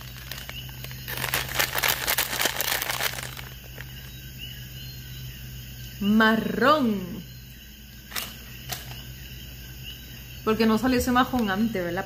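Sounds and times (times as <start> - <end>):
plastic candy bag crinkling: 0.0 - 4.1.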